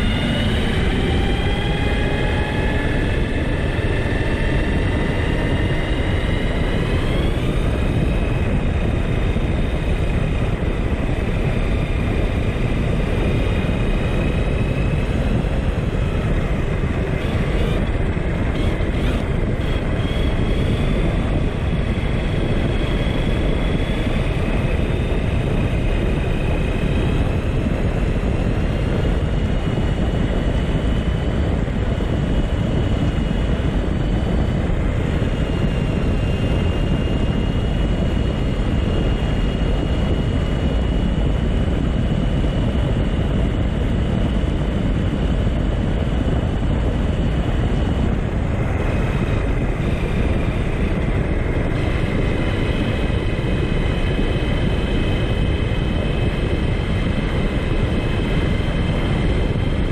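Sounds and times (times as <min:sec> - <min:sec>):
electric motor whining: 0:00.0 - 0:27.1
wind and tyres rumbling: 0:00.0 - 0:59.9.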